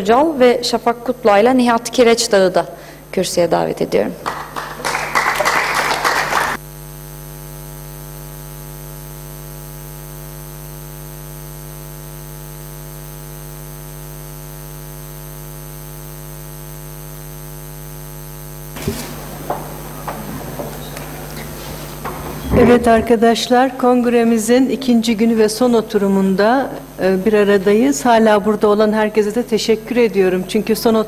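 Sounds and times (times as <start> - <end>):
electrical mains hum: 0.0 - 31.0.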